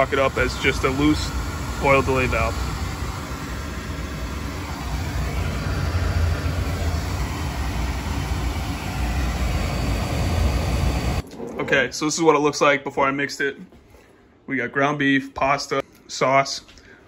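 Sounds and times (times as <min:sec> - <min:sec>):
oil burner rumbling: 0:00.0 - 0:12.2.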